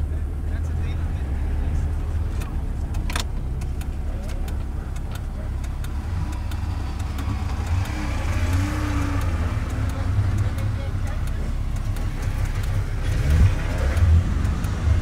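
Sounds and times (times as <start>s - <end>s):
car engine idling: 0.0s - 15.0s
passing car: 0.0s - 15.0s.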